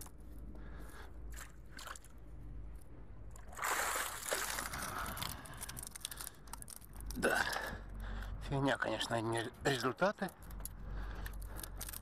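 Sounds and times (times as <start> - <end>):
faint splashes: 1.3 - 2.1, 3.3 - 6.0
water streaming off a net: 3.4 - 5.1.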